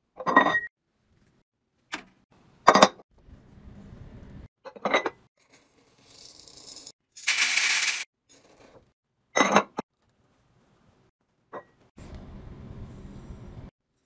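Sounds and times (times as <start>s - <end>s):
beads rattling and pouring: 5.5s - 8.1s
metal scoop digging into beads: 5.5s - 8.1s.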